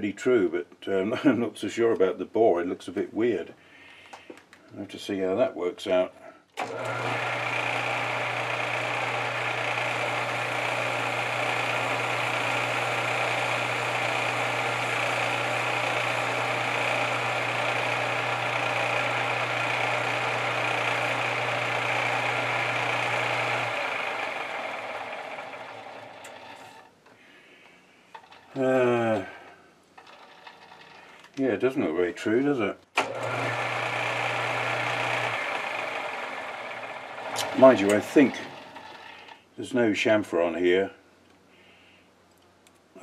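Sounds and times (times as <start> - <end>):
lathe winding down: 6.6 - 26.9, 30.0 - 31.0, 33.0 - 39.4
metal lathe running: 6.6 - 26.9, 30.0 - 31.0, 33.0 - 39.4
high gear whine: 33.0 - 39.3.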